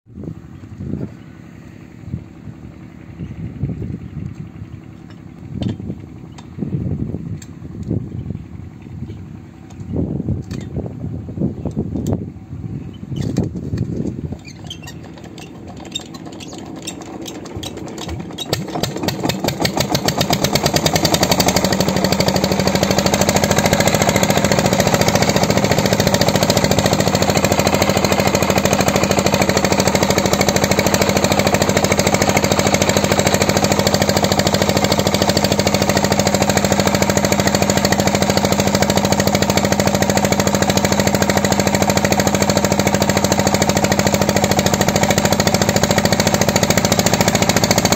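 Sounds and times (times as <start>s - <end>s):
stationary engine starting and running: 12.0s - 47.9s.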